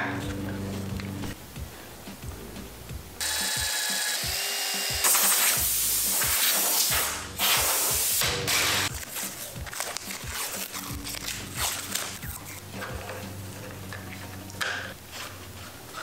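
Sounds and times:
loud hiss: 0:03.2 - 0:08.9.

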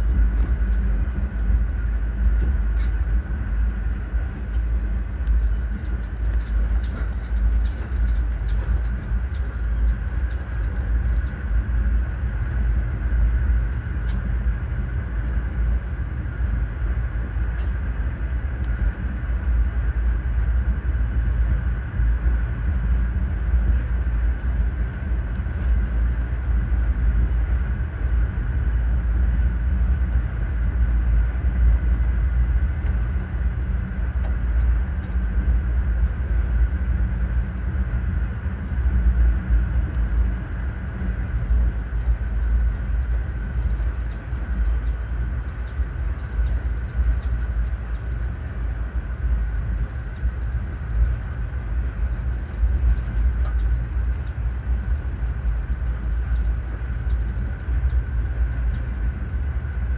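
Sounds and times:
train wheels rumbling on rails: 0:00.0 - 0:12.6
steady high hum: 0:00.0 - 0:59.9.

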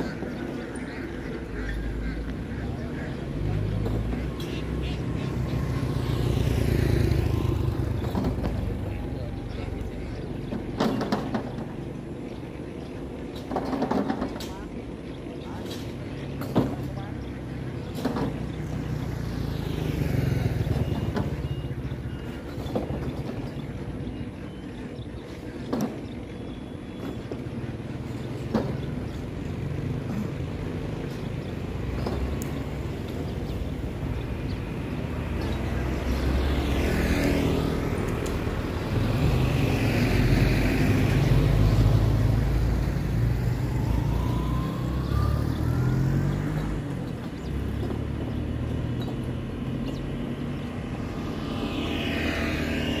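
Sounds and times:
motorbike approaching: 0:00.0 - 0:53.0
vehicles passing by: 0:00.0 - 0:53.0
motorbike engine passing close: 0:16.3 - 0:24.0, 0:27.9 - 0:53.0
rising engine whine: 0:28.7 - 0:53.0.

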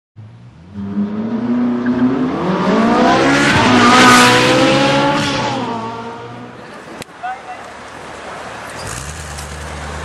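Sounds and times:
car engine accelerating hard: 0:00.6 - 0:06.6.

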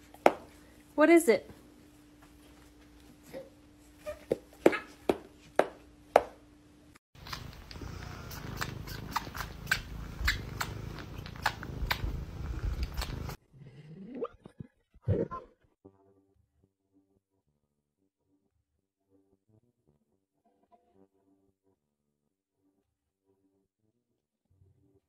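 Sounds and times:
cat purring: 0:07.2 - 0:14.1.

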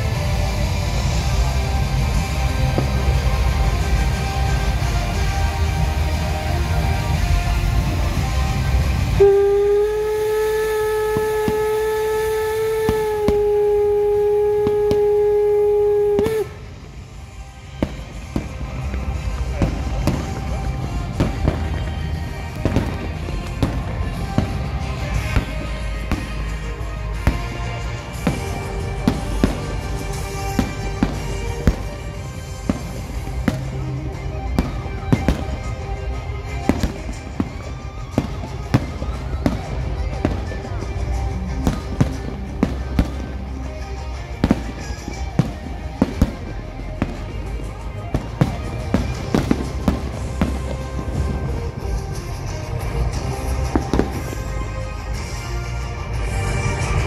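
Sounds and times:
fireworks banging: 0:00.0 - 0:57.0
loud music: 0:00.0 - 0:57.0
steam locomotive whistle: 0:08.6 - 0:16.7.

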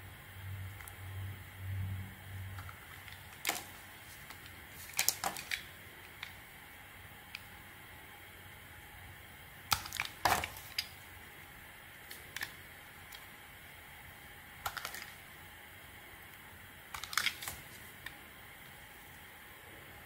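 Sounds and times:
blade cutting soap crackling: 0:02.6 - 0:06.5, 0:09.7 - 0:11.1, 0:11.9 - 0:13.4, 0:14.5 - 0:15.5, 0:16.3 - 0:18.2.

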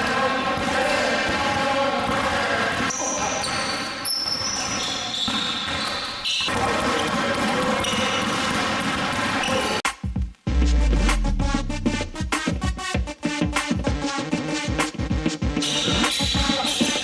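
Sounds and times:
basketball bouncing on hardwood floor: 0:04.4 - 0:09.8.

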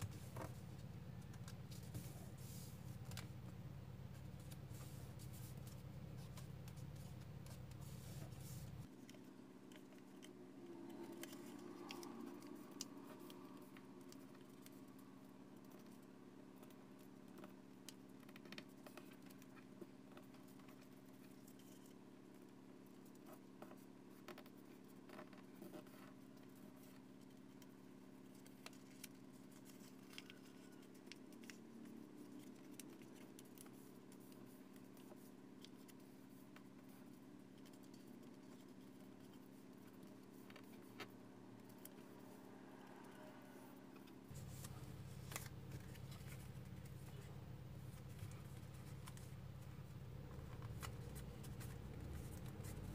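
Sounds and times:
low steady hum: 0:00.0 - 0:52.9
paper crackling and rustling: 0:44.3 - 0:52.9.

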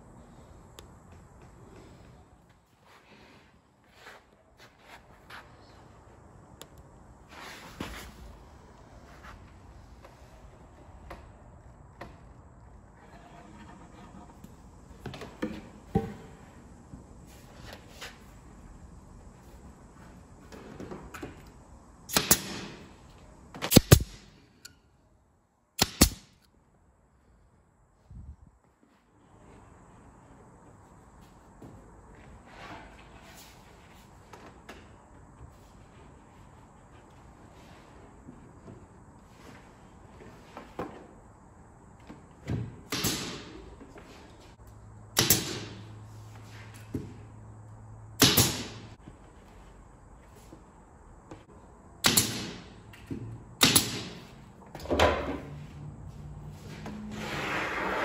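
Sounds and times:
pneumatic nailer snapping: 0:22.1 - 0:22.9, 0:23.6 - 0:24.8, 0:25.8 - 0:26.5, 0:42.9 - 0:43.6, 0:45.2 - 0:45.9, 0:48.2 - 0:48.8, 0:52.0 - 0:53.0, 0:53.6 - 0:54.3.

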